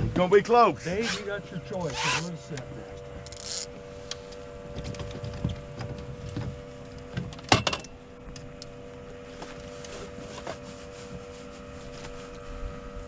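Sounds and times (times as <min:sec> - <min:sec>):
knocks against fibreglass boat: 0:04.7 - 0:07.9.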